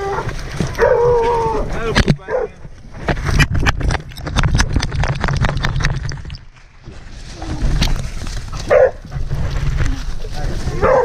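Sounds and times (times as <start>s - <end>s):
dog running through dry leaves: 7.0s - 11.0s.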